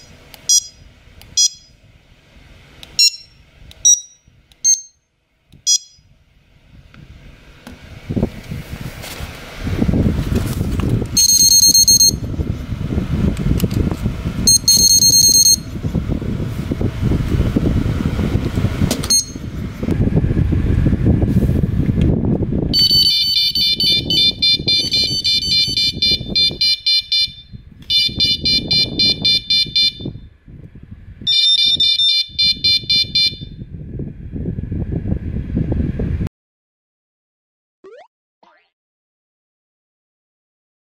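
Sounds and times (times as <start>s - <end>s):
high bite alarm beeps: 0.5s - 0.8s, 1.4s - 1.8s, 3.0s - 5.0s, 5.7s - 6.0s, 11.2s - 12.3s, 14.5s - 15.7s, 19.1s - 19.4s, 22.8s - 30.1s, 31.3s - 33.5s
fast pulsed beeping: 1.4s - 1.8s, 3.0s - 5.0s, 11.2s - 12.2s, 14.5s - 15.6s
low rumbling noise: 6.1s - 22.8s, 33.6s - 36.3s.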